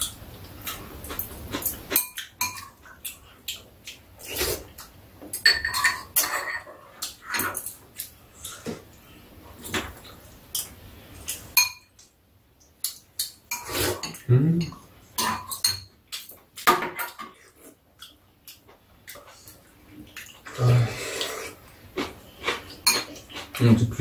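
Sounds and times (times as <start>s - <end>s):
spoons clinking against ceramic bowls: 1.1s - 3.2s, 5.3s - 8.1s, 10.6s - 12.0s, 12.8s - 17.3s, 22.8s - 23.2s
short voice-like hum: 14.3s - 14.7s.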